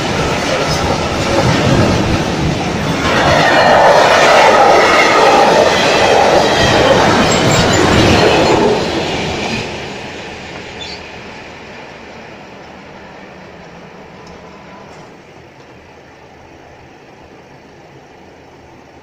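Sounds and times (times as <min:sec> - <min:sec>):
freight train wheels clattering on rail: 0:00.0 - 0:16.1.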